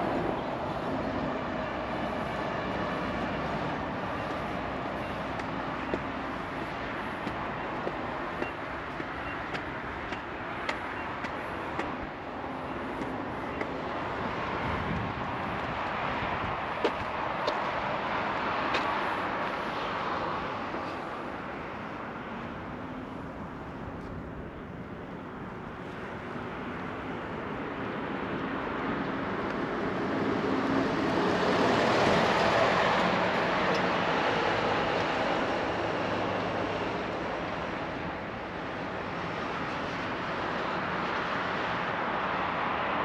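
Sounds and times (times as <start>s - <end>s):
road traffic passing: 0.0s - 43.0s.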